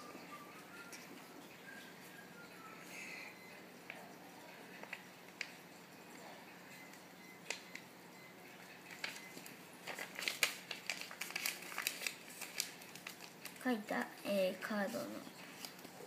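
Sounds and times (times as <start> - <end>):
paper crinkling and folding: 8.6 - 16.0.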